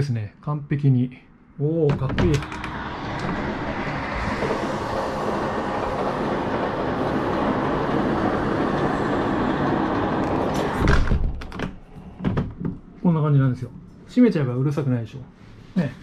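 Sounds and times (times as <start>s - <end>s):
trains passing on tracks: 2.2s - 11.1s
knock: 10.7s - 12.8s.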